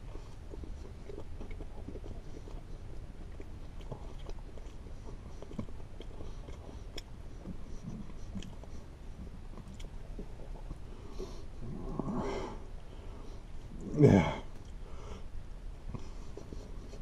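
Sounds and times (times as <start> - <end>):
man chewing crispy food: 0.0 - 17.0
steady low hum: 0.0 - 17.0.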